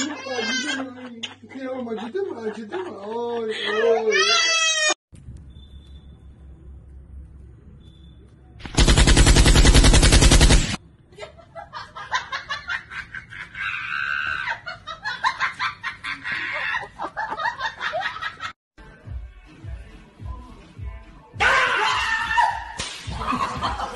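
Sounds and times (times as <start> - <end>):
automatic gunfire: 8.7 - 10.8.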